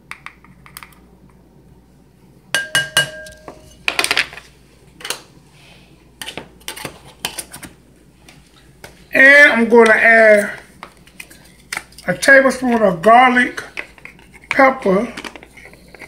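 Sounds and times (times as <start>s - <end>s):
metal utensils clinking: 2.6s - 3.8s.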